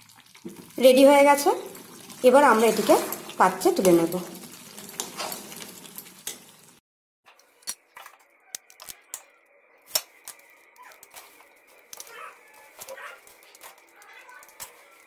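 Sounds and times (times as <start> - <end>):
metal spatula clinking and scraping: 4.7 - 6.5, 12.6 - 15.0.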